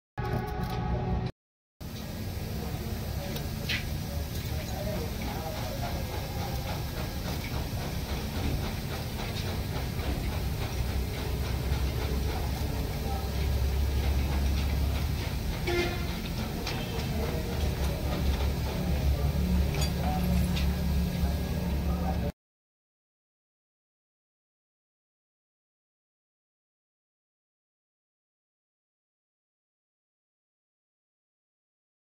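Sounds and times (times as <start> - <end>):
low mechanical rumble: 0.2 - 22.3.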